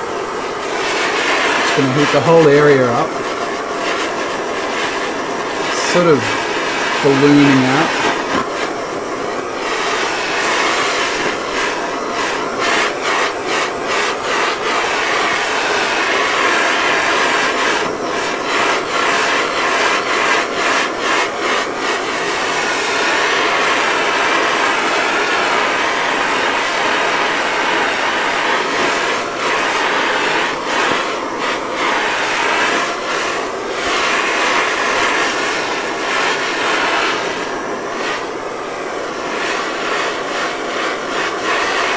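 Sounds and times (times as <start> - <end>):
gas torch hissing roar: 0.0 - 41.9.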